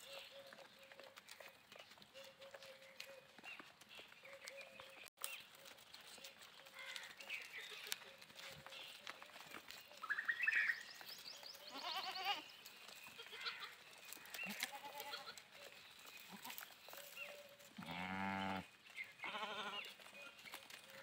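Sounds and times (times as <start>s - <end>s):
goats bleating: 11.6s - 15.5s, 16.2s - 16.7s, 17.8s - 20.0s.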